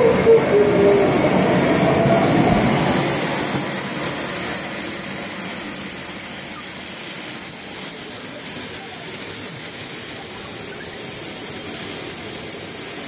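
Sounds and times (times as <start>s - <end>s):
loud steady rush: 0.0s - 7.3s
turbine engine whine: 0.0s - 13.0s.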